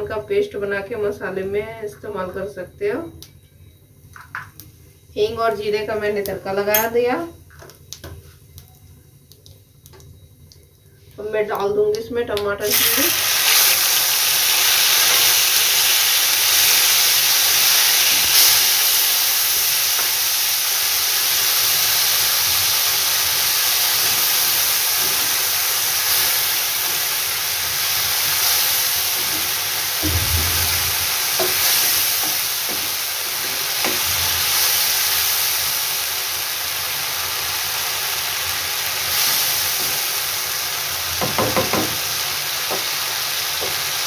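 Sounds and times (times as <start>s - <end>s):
paste sizzling in oil: 12.6s - 41.0s.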